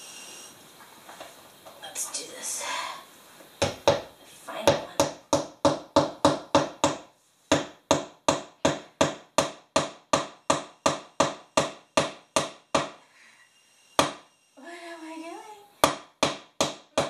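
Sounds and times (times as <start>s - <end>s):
hammer striking wooden board: 3.6s - 4.1s, 4.7s - 13.0s, 14.0s - 14.2s, 15.8s - 17.0s.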